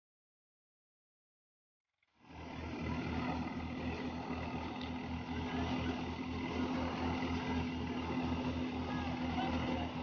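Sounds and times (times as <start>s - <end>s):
thresher engine throbbing: 2.1s - 10.0s.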